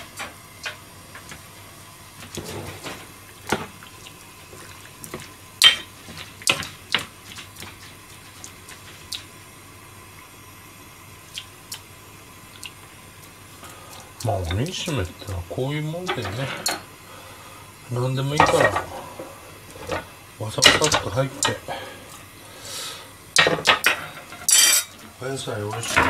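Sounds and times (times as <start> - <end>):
glass and pan clinking: 23.4 - 25.0.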